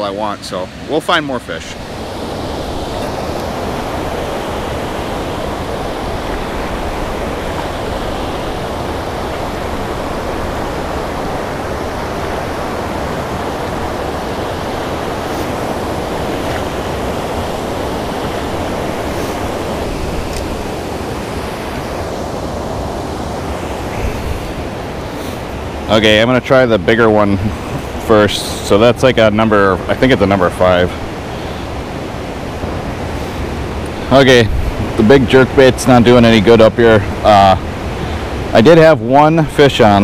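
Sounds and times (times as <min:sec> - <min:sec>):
turbulent river water rushing: 0:00.0 - 0:40.0.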